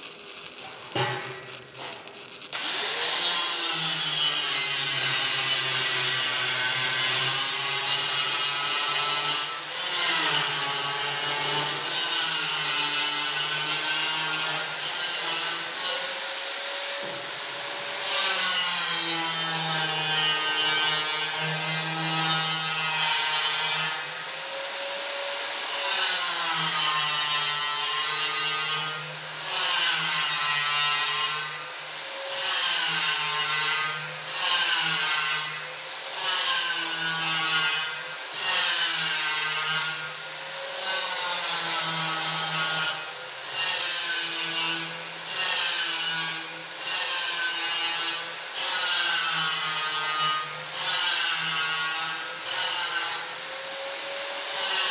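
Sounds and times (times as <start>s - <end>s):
welding arc crackling hiss: 0.0s - 18.6s.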